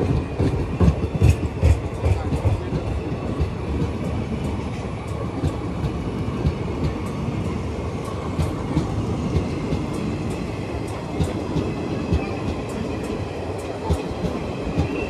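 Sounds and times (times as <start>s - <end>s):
train coaches rumbling past: 0.0s - 15.0s
wheels clicking on rails: 0.0s - 15.0s.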